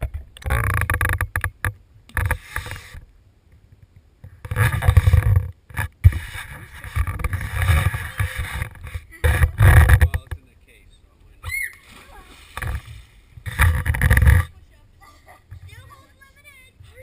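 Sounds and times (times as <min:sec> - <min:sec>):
camera handling rumbling and rubbing: 0:00.0 - 0:10.5, 0:12.5 - 0:14.6.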